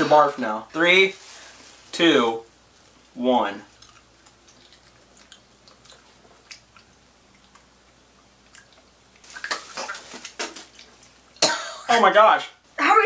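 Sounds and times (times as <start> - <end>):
breathy rustling noise: 1.2 - 2.0
wet chewing clicks: 3.7 - 11.3.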